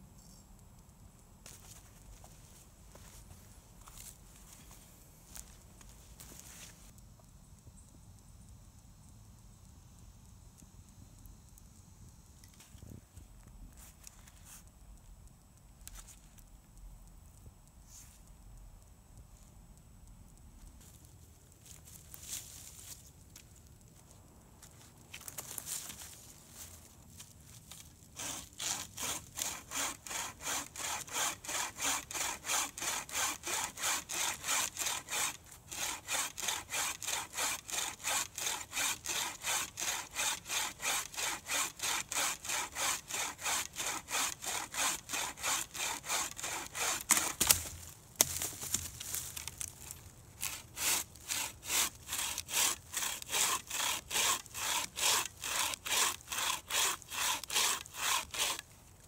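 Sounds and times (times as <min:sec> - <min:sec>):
hand saw cutting a branch: 0:27.7 - 0:58.7
branch cracking: 0:47.0 - 0:50.5.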